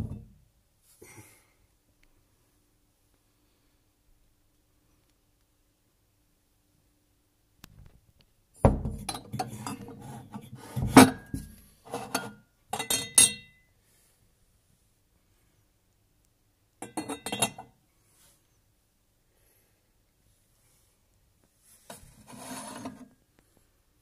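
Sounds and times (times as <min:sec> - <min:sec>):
ceramic teacups clinking: 0:12.0 - 0:13.5, 0:16.8 - 0:17.7.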